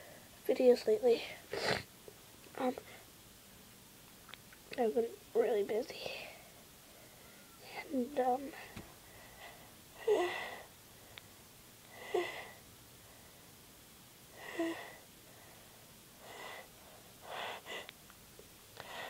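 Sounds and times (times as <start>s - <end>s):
woman breathing noisily: 8.6s - 13.6s, 14.3s - 18.0s, 18.8s - 19.0s.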